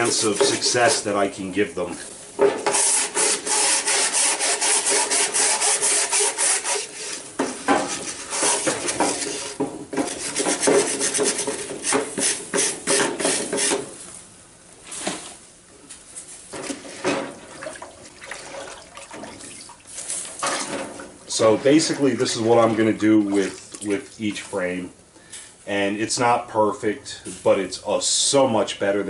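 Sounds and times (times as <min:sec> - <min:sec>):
wire brush scrubbing: 0:00.0 - 0:01.3, 0:02.5 - 0:12.4.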